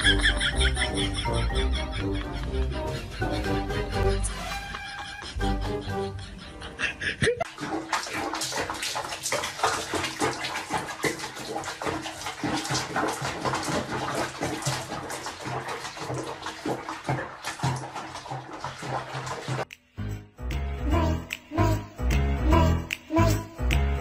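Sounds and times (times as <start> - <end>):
water splashing in sink: 7.4 - 19.8.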